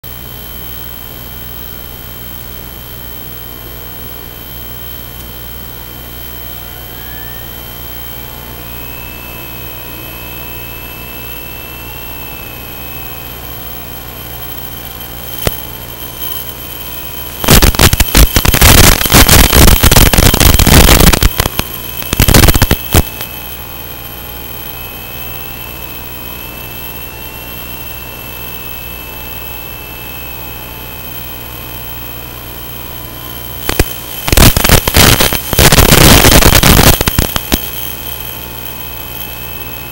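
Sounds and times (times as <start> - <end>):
loud crackling static: 0.0 - 39.9
receiver hiss: 0.0 - 39.9
faint drifting whine: 0.4 - 39.9.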